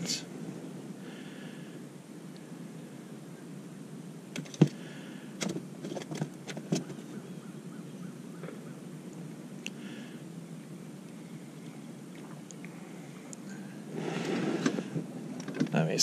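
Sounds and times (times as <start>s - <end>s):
low background noise: 0.0s - 16.0s
sharp clicks and knocks: 4.3s - 4.8s.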